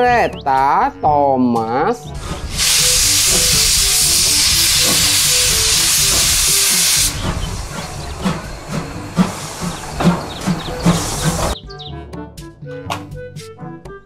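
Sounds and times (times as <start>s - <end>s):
steam locomotive venting steam: 2.1s - 11.6s
quiet irregular beats: 4.6s - 11.8s.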